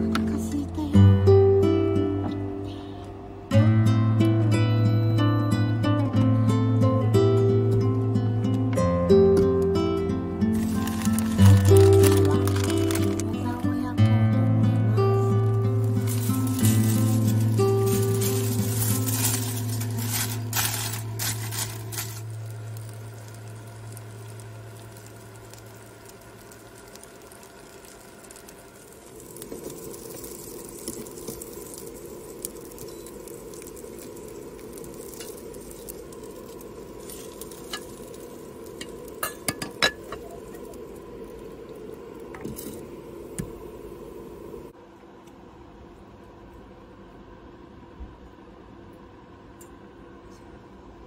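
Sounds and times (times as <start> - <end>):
dumplings sizzling in a pan: 10.4 - 13.7, 14.8 - 44.8.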